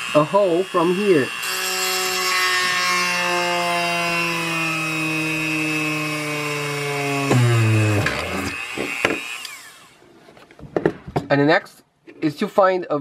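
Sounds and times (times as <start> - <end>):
rotary tool drilling plastic: 0.0 - 10.1.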